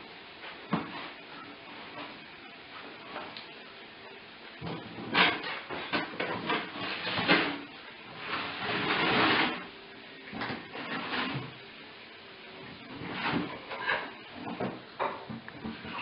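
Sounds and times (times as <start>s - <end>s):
cardboard scraping on floor: 4.9s - 9.7s, 10.5s - 11.6s, 12.8s - 14.5s.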